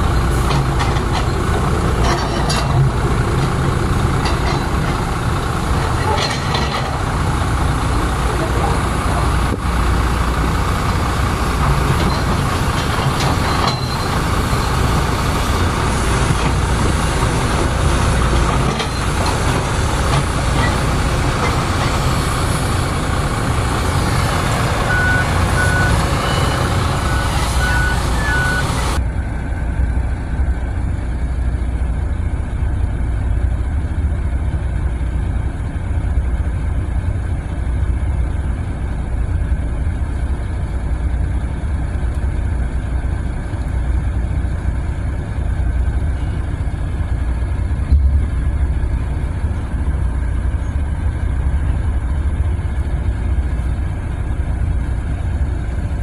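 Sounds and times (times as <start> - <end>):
heavy diesel machinery rumbling: 0.0 - 56.0
reversing alarm beeping: 24.8 - 29.0.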